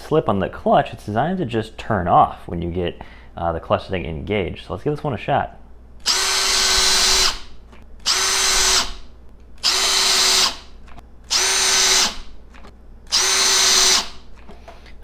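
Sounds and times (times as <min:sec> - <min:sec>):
hammer drill motor whine: 0:06.0 - 0:10.7, 0:11.3 - 0:12.3, 0:13.1 - 0:14.2.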